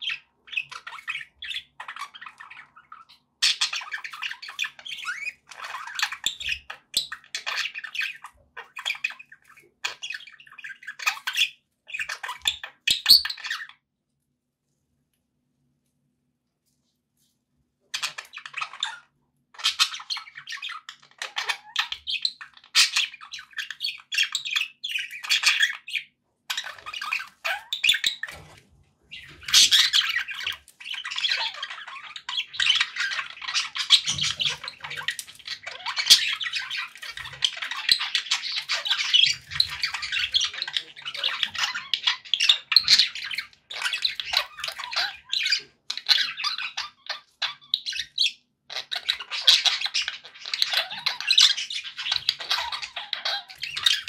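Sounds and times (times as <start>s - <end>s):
budgerigars chattering: 0.0s - 13.7s, 17.9s - 54.0s.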